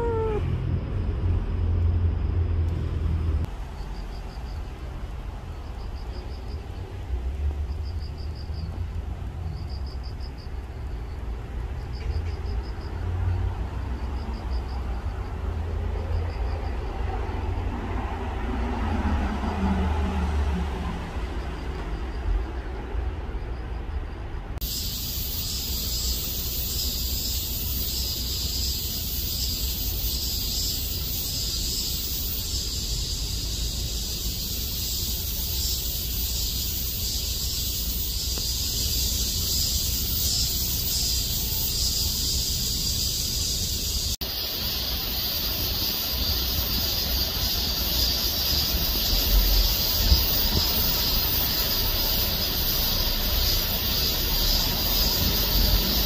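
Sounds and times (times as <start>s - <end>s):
high hiss: 24.6s - 56.0s.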